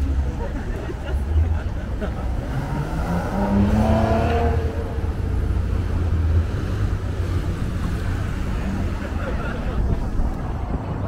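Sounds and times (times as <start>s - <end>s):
city street traffic: 0.0s - 11.0s
wind rumble on microphone: 3.5s - 11.0s.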